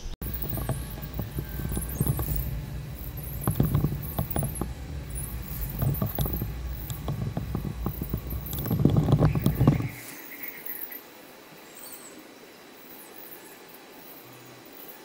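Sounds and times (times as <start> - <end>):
steady low rumble: 0.0 - 10.0
high squeaky chirps: 0.0 - 10.1
rapid patter of taps and rustles: 0.2 - 10.0.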